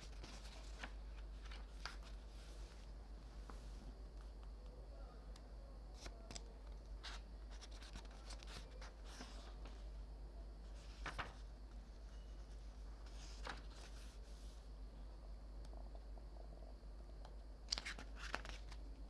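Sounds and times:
book pages turning: 0.0s - 4.4s, 5.9s - 9.8s, 10.8s - 11.5s, 13.0s - 14.2s, 17.7s - 18.9s.

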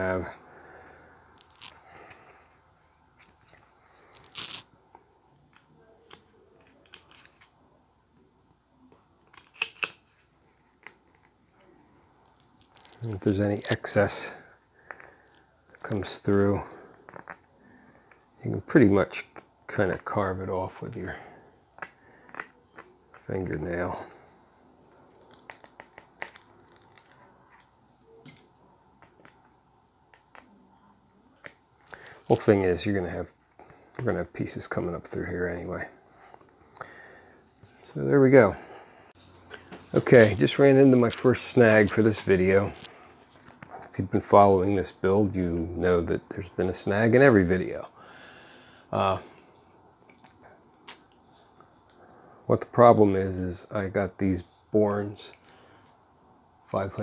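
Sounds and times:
foil and plastic clicks and crinkles: 12.2s - 13.9s, 25.1s - 27.7s.

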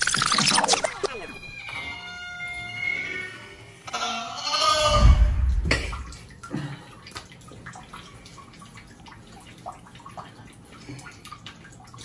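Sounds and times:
bathwater splashing and dripping: 4.8s - 12.0s.

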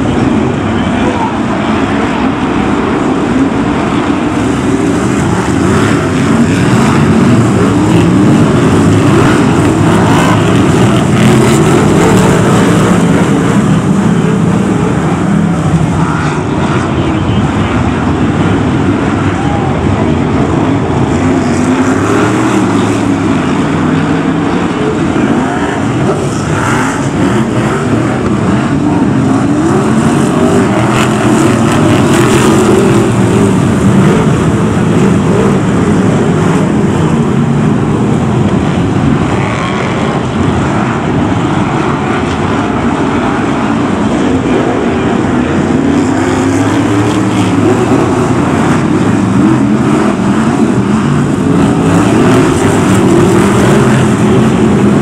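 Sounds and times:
stock car engines racing: 0.0s - 55.0s.

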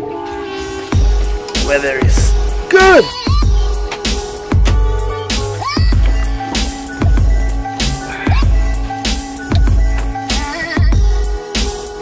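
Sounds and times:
held synth notes: 0.0s - 11.6s
music with bass beat: 0.0s - 12.0s.

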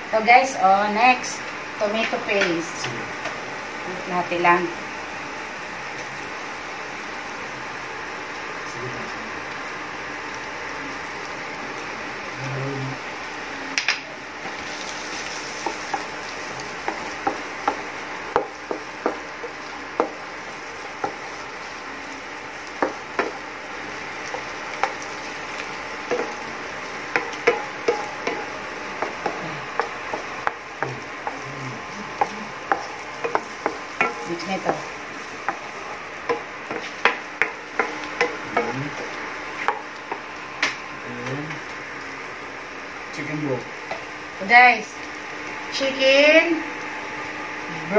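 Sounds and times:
frying sizzle: 0.0s - 47.9s
spatula tapping and scraping pan: 15.2s - 20.3s, 22.7s - 23.5s, 24.2s - 31.4s, 32.1s - 40.8s.

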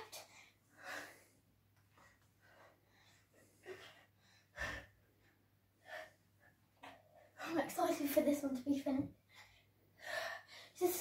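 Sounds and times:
girl breathing hard: 0.0s - 7.6s, 9.2s - 11.0s.

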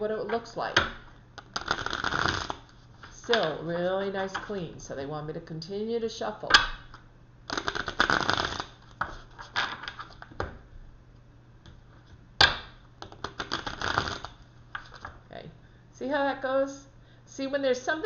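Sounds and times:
cards riffle-shuffled: 7.5s - 10.3s, 13.0s - 15.1s.

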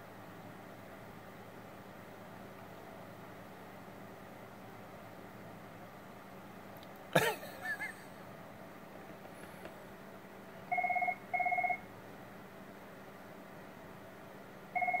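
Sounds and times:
telephone ringing: 10.7s - 11.8s, 14.8s - 15.0s.

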